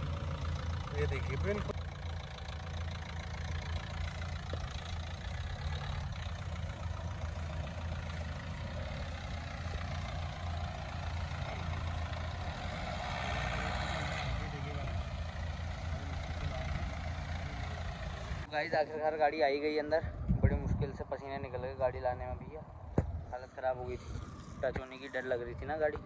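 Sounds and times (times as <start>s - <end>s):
car engine at low revs: 0.0s - 18.5s.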